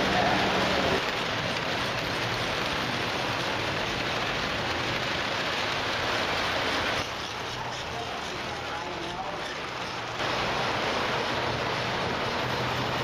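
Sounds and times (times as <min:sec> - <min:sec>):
model trains rattling on metal track: 0:00.0 - 0:13.0.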